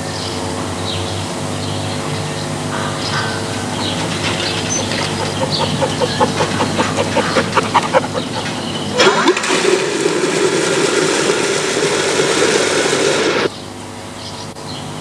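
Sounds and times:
fowl calling: 2.7s - 9.0s
water gushing into metal bucket: 4.2s - 13.2s.

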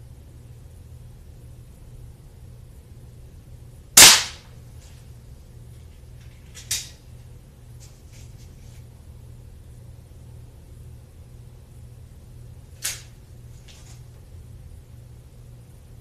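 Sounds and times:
pellet pistol firing crack: 4.0s - 4.5s
quieter snap: 4.0s - 4.5s.

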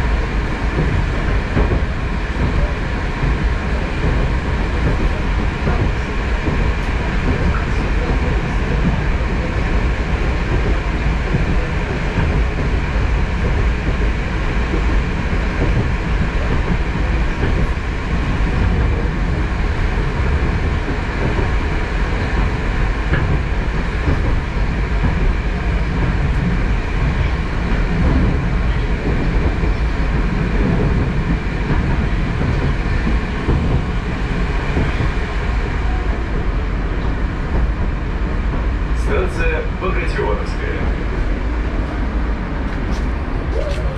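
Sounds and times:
train wheels rumbling on rail: 0.0s - 43.9s.

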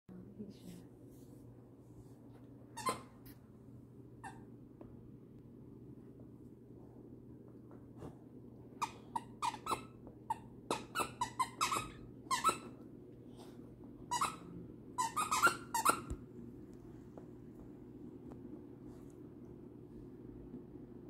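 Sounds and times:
squeaky toy squeaks: 2.8s - 3.1s, 8.8s - 12.8s, 14.1s - 16.1s.

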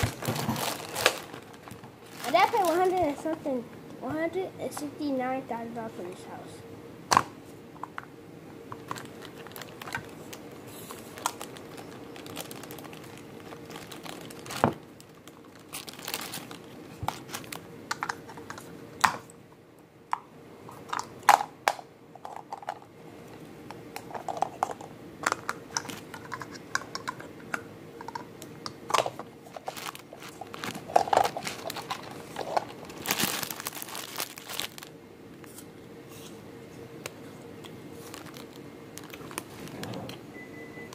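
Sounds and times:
plastic packaging crinkling: 0.0s - 3.5s, 8.8s - 18.7s, 24.0s - 27.3s, 28.8s - 35.6s, 37.9s - 39.9s.

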